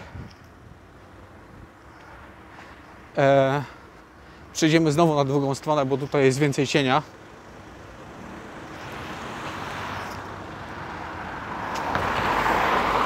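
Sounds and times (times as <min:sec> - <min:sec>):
car approaching: 0:00.0 - 0:13.0.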